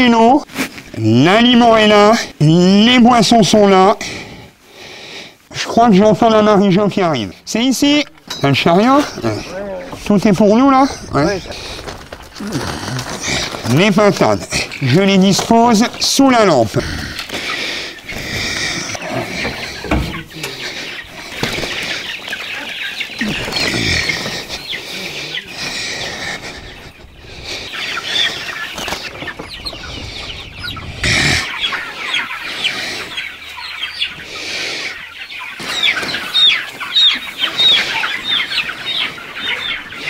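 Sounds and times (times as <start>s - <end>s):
chicks peeping: 0.0s - 40.0s
plastic crates knocking: 19.4s - 20.3s.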